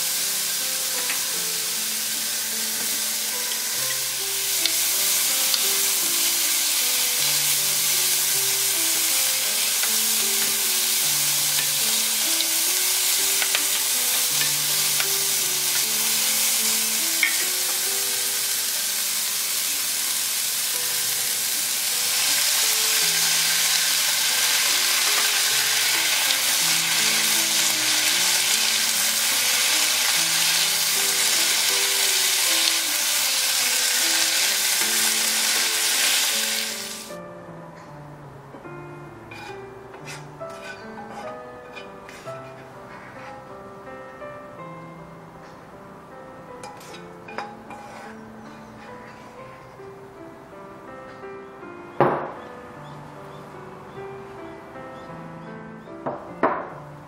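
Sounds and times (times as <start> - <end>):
vegetables sizzling in a wok: 0.0 - 37.2, 39.3 - 43.5, 46.6 - 48.8
spatula stirring and tossing: 39.3 - 42.6.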